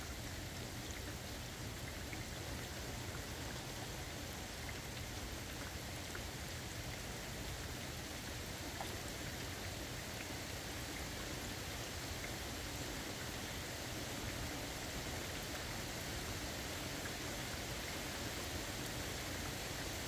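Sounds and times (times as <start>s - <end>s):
steady rain hiss: 0.0s - 20.0s.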